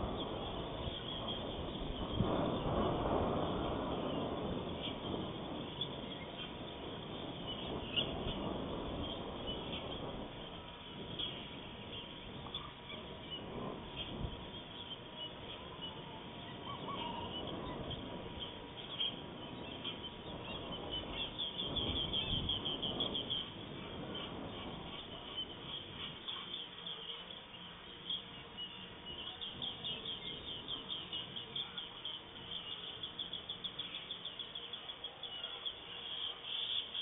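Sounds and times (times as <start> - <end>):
birds chirping: 0.0 - 37.0
faint steady whine: 0.0 - 37.0
low background hiss: 0.0 - 37.0.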